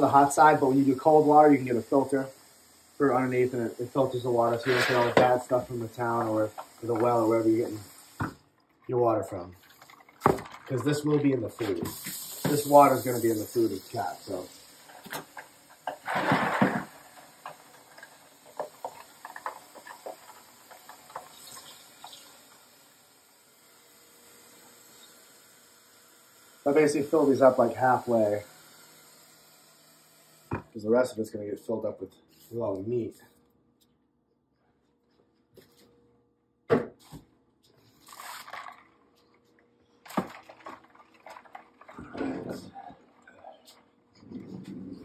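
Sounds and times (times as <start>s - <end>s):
tap water running into basin: 0.0s - 8.4s, 9.3s - 23.0s
ice clicking and splashing: 9.6s - 14.4s, 15.4s - 22.2s, 37.9s - 39.0s, 40.0s - 42.3s
loud noisy burst: 15.8s - 17.5s.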